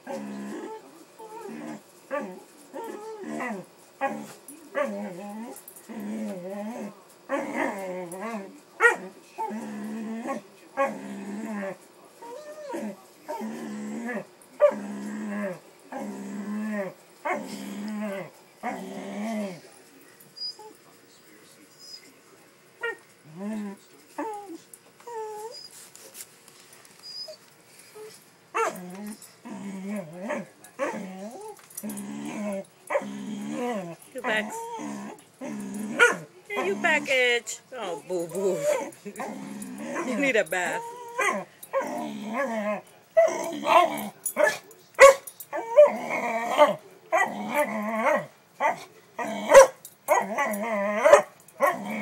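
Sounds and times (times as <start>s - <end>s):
dog whimpering: 0.0s - 3.6s, 11.5s - 13.4s, 20.4s - 20.8s, 22.8s - 25.8s, 27.0s - 27.4s, 28.0s - 35.2s, 38.1s - 44.6s, 45.5s - 49.6s.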